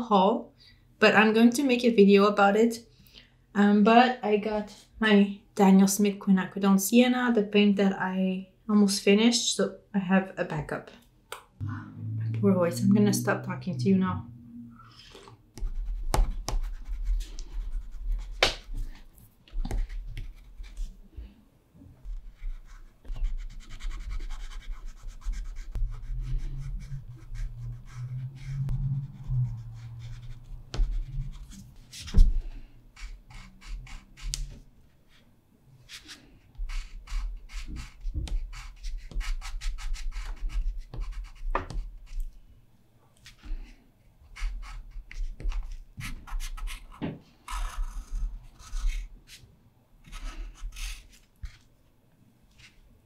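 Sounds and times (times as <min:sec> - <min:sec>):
wax pastel scratching on paper: 0:15.6 - 0:19.0, 0:22.1 - 0:32.3, 0:33.0 - 0:35.2, 0:35.9 - 0:42.3, 0:50.0 - 0:51.6.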